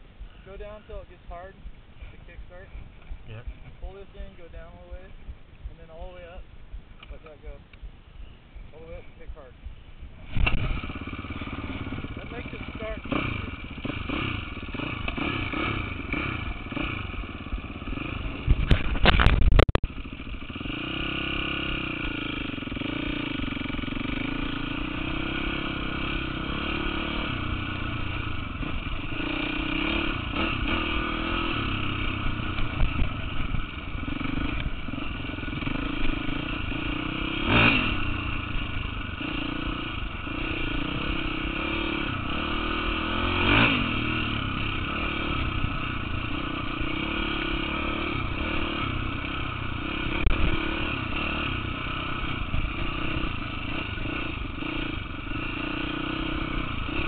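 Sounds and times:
engine idling: 0.0s - 57.0s
dirt bike kickstarted: 10.2s - 24.1s.

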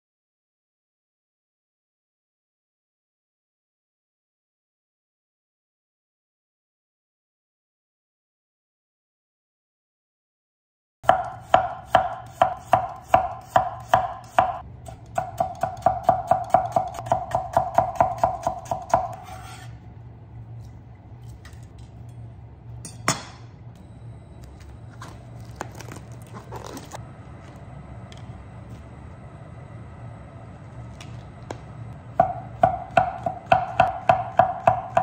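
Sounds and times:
knife chopping carrot on board: 11.1s - 19.4s, 32.2s - 35.0s
faint low hum: 18.5s - 35.0s.

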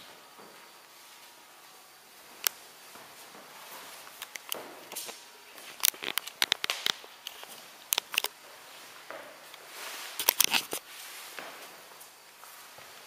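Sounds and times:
soft hiss: 0.0s - 13.0s
sharp clicks and crackles: 4.0s - 8.4s, 10.2s - 10.8s.

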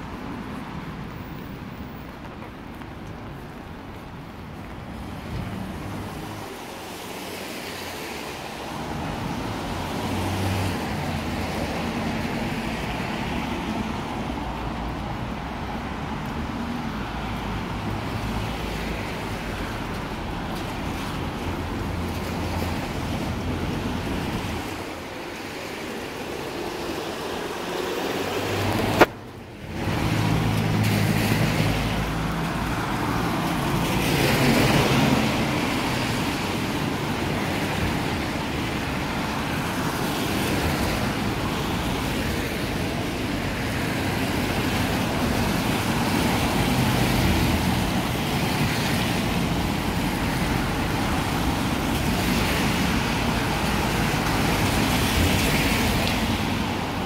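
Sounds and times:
passing vehicle engines: 0.0s - 57.0s
tyre hiss on wet road: 4.9s - 15.3s.

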